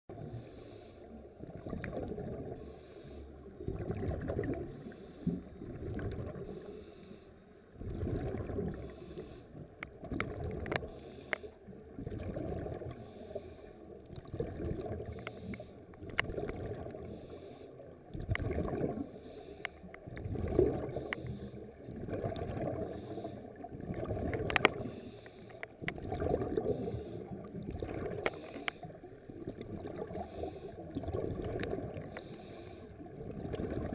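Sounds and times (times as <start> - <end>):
scuba regulator breathing: 0.2 - 1.4, 2.6 - 3.5, 4.7 - 5.5, 6.4 - 7.6, 8.8 - 9.6, 10.8 - 11.7, 12.9 - 14.0, 15.0 - 16.0, 17.0 - 17.9, 18.9 - 20.0, 20.9 - 21.8, 22.7 - 23.6, 24.6 - 25.8, 26.5 - 27.5, 28.2 - 29.3, 30.0 - 30.9, 32.0 - 33.0
exhaled bubbles rushing: 1.4 - 2.6, 3.6 - 6.5, 7.8 - 8.9, 10.0 - 10.9, 11.9 - 13.1, 14.1 - 15.2, 16.0 - 17.1, 18.1 - 19.1, 20.1 - 21.1, 21.7 - 24.9, 25.8 - 28.4, 29.2 - 32.2, 33.0 - 33.9.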